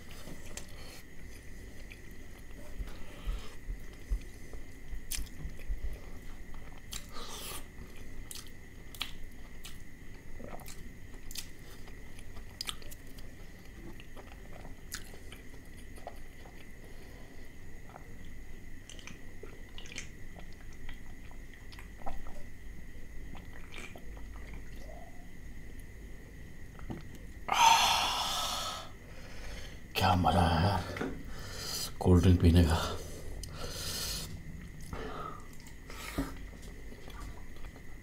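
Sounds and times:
wet chewing and lip smacks: 0:03.8 - 0:05.8, 0:06.4 - 0:07.1, 0:07.9 - 0:16.8, 0:17.8 - 0:22.4, 0:23.2 - 0:24.9, 0:34.6 - 0:38.0
faint steady high tone: 0:24.6 - 0:25.4.

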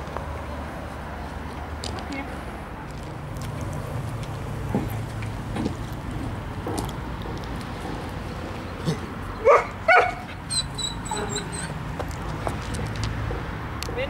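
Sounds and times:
dog barking: 0:09.4 - 0:10.3.

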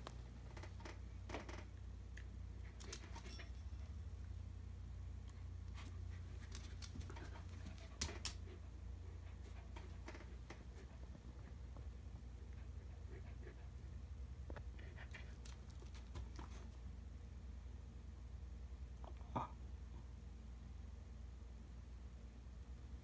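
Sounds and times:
low room hum: 0:00.0 - 0:23.0
dog claws clicking on floor: 0:06.4 - 0:08.6.

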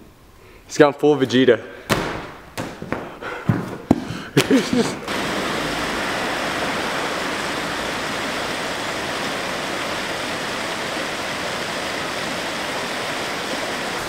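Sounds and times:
river rushing over rapids: 0:05.1 - 0:14.0.

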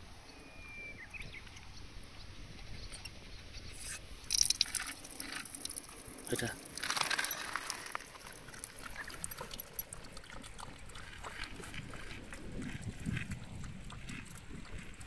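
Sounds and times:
water stream trickling: 0:01.0 - 0:15.0
dog lapping water: 0:04.3 - 0:15.0.

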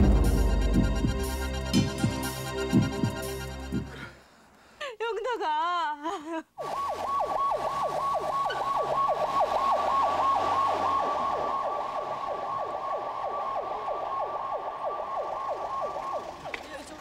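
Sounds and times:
ambulance siren yelping: 0:06.6 - 0:17.0.

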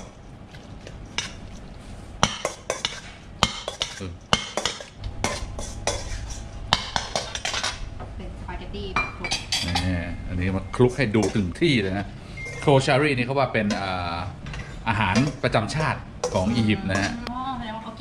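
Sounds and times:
metal ladle stirring in metal bowl: 0:00.0 - 0:07.9, 0:10.7 - 0:12.9, 0:13.7 - 0:17.2.

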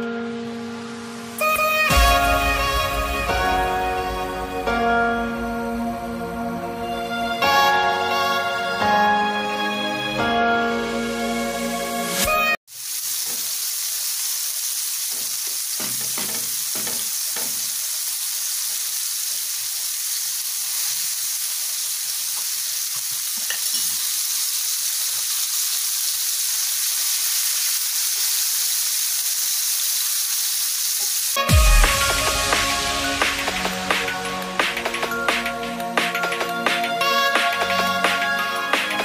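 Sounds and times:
fish sizzling in frying pan: 0:12.7 - 0:39.0.

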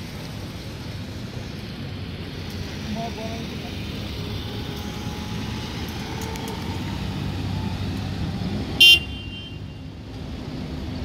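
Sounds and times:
small cars rumbling: 0:00.0 - 0:11.0
car horn beep: 0:08.8 - 0:09.8.

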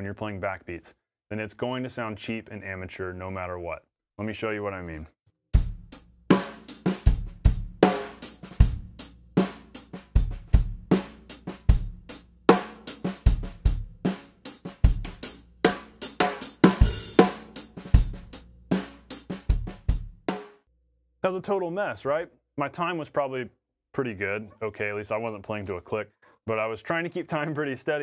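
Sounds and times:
drum kit playing a groove: 0:05.6 - 0:20.6.

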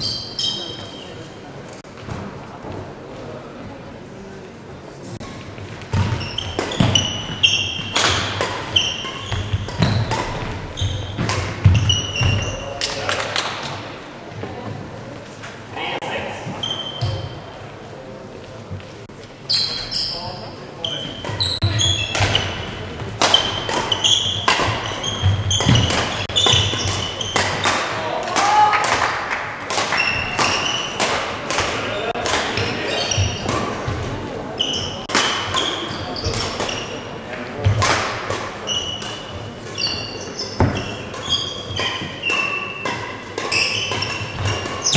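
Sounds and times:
court shoes squeaking: 0:00.0 - 0:01.4, 0:05.2 - 0:13.8, 0:16.2 - 0:17.7, 0:18.7 - 0:27.9, 0:29.7 - 0:44.9
racket striking shuttlecock: 0:05.9 - 0:13.7, 0:21.8 - 0:29.0, 0:29.7 - 0:32.7, 0:35.0 - 0:36.8, 0:40.6 - 0:44.9.

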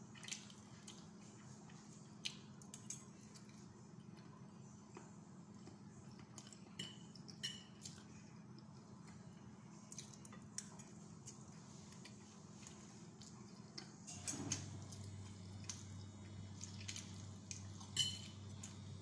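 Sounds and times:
low steady hum: 0:00.0 - 0:19.0
forks clinking on a plate: 0:17.8 - 0:18.4.

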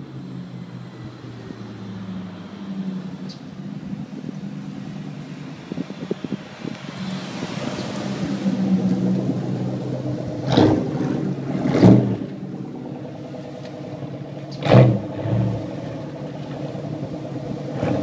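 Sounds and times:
car engine driving past: 0:00.9 - 0:18.0.

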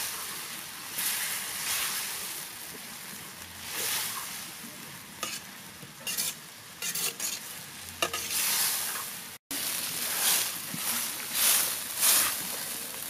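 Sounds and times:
vegetables sizzling in a wok: 0:00.0 - 0:13.0
plastic spatula scraping a pan: 0:05.2 - 0:09.0.

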